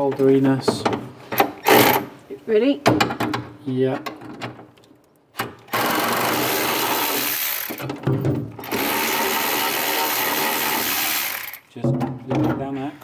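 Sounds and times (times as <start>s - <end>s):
cordless power tool spinning: 5.7s - 8.0s, 8.6s - 11.7s.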